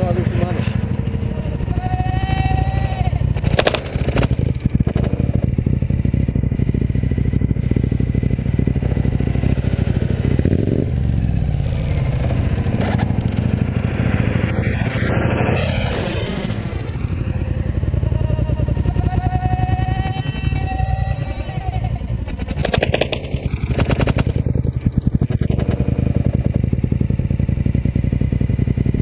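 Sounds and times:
steady low rumble: 0.0 - 29.0
motorcycle falling with clatter: 3.4 - 5.4.

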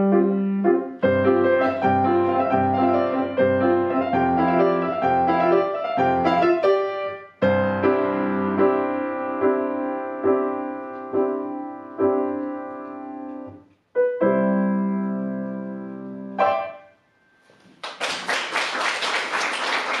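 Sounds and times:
piano chords: 0.0 - 17.7
audience applause: 17.8 - 20.0.

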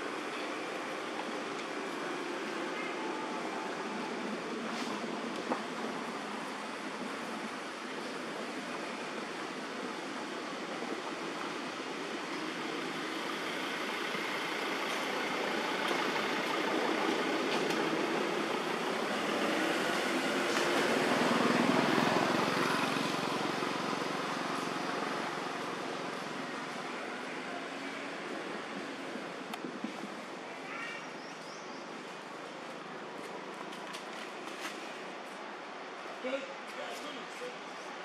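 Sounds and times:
vehicle passing by: 13.6 - 28.0.

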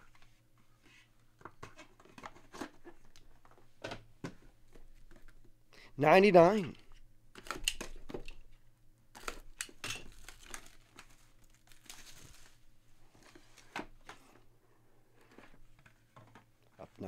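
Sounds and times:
plastic wrap crinkling and tearing: 9.2 - 12.7.

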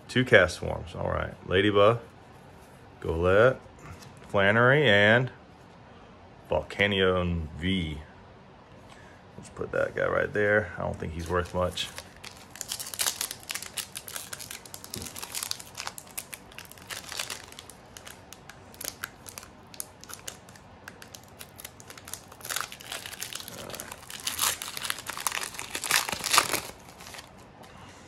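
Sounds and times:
foil wrapper crinkling: 11.2 - 27.4.

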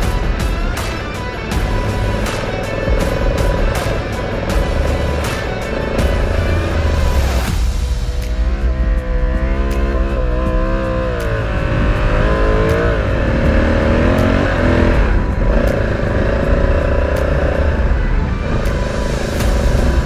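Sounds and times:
motorcycle engine revving: 0.0 - 20.0.

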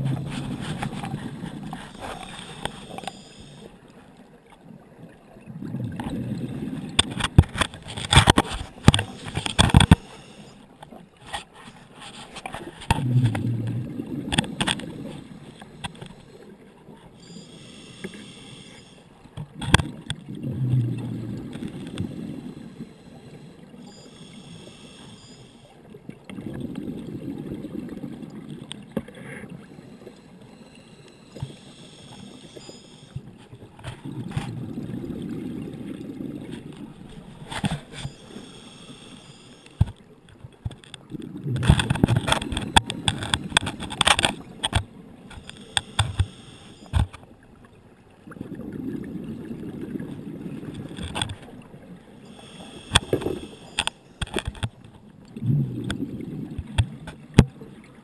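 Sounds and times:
regulator hissing inhale: 0.5 - 3.8, 9.1 - 10.7, 17.2 - 19.1, 22.0 - 25.7, 29.2 - 33.2, 37.8 - 39.8, 45.4 - 47.0, 52.3 - 54.1.

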